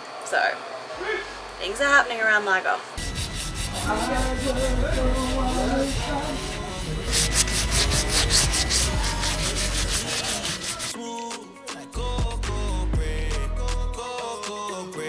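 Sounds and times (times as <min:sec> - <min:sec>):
hand sanding hull: 0:03.0 - 0:11.0.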